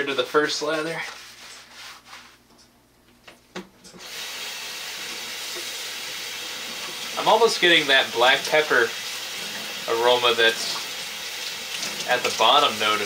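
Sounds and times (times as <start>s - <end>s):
water running into metal sink: 4.0s - 13.0s.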